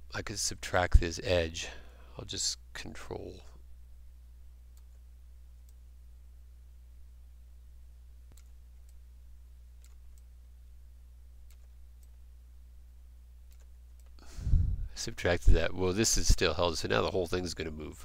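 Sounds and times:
low electrical hum: 0.0s - 18.0s
computer mouse clicks: 8.3s - 9.0s, 9.8s - 10.3s, 11.4s - 12.2s, 13.5s - 14.2s.

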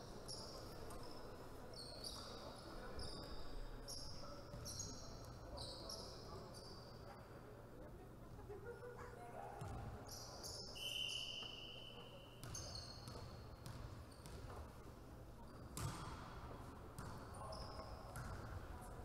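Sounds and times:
referee's whistle: 10.8s - 12.4s
ball bouncing on wooden floor: 15.8s - 16.1s.

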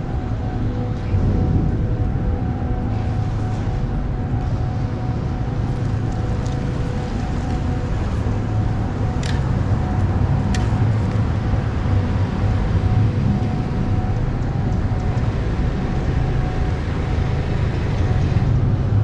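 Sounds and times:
constant hum: 0.0s - 19.0s
low mechanical rumble: 0.0s - 19.0s.

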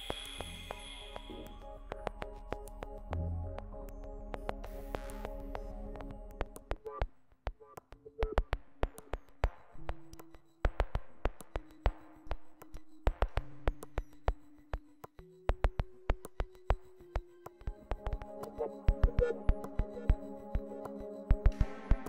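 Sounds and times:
sustained synthesizer tones: 0.0s - 7.0s
sharp irregular clicks: 3.9s - 16.8s.

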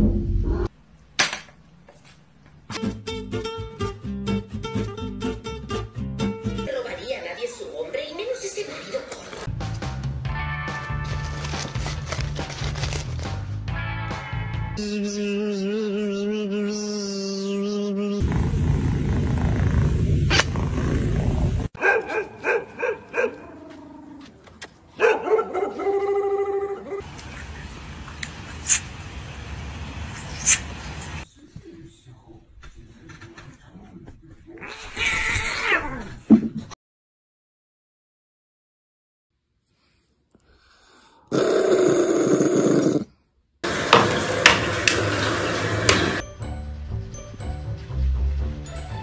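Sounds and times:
dog barking: 21.8s - 23.5s, 25.0s - 27.1s
dog growling: 41.3s - 43.1s.

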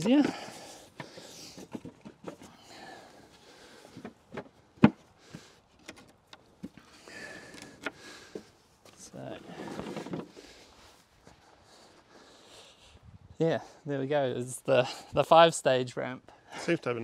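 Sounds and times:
wooden ramp pieces knocking: 3.9s - 5.0s, 9.5s - 10.4s.

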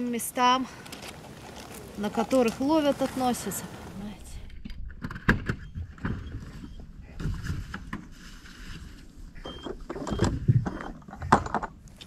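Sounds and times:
wind rumbling on microphone: 3.0s - 11.6s
knocks and rustles: 4.6s - 12.0s.

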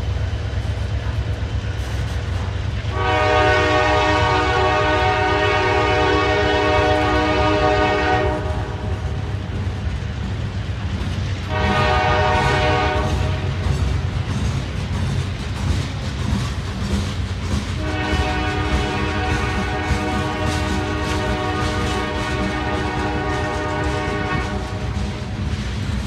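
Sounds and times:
freight cars rumbling on rails: 0.0s - 26.0s
locomotive horn blasting: 2.9s - 8.9s, 11.5s - 13.4s, 17.8s - 25.0s.

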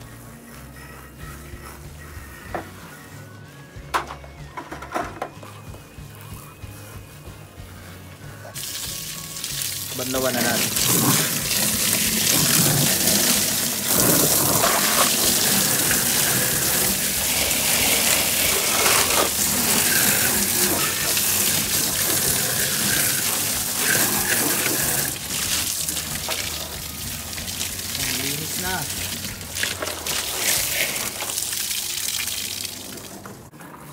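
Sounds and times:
water splashing onto plastic: 8.6s - 33.5s.

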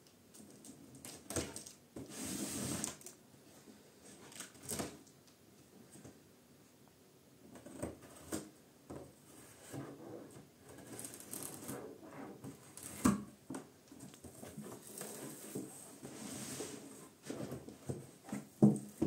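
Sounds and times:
cardboard scraping and rustling: 1.4s - 3.1s, 14.2s - 19.0s.

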